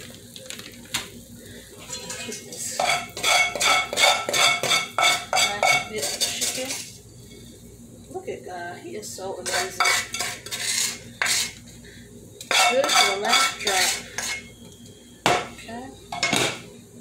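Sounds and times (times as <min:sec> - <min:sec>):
spatula scraping metal pot: 0:01.8 - 0:07.0, 0:09.4 - 0:11.6, 0:12.5 - 0:14.5.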